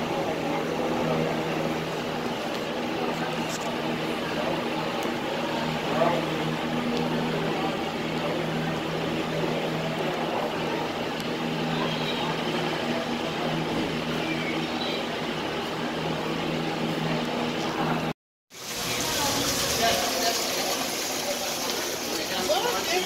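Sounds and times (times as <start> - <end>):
low machine hum: 0.0 - 18.1.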